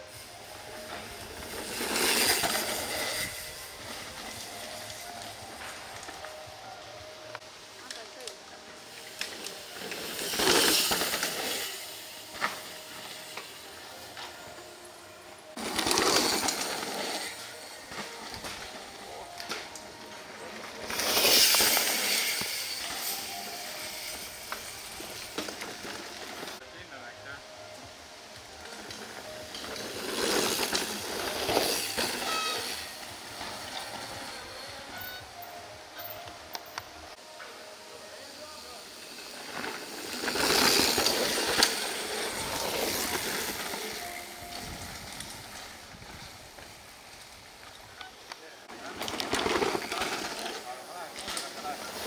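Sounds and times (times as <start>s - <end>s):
bike tyres crunching through dirt: 0.0s - 26.6s, 28.4s - 36.6s, 37.5s - 52.0s
bike clicks and rattles: 9.0s - 14.5s, 15.6s - 26.6s, 28.6s - 37.0s, 39.4s - 52.0s.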